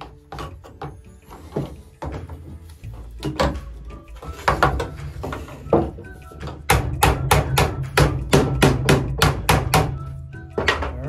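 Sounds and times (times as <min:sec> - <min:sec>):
hammer striking plastic pipe: 0:03.2 - 0:11.0.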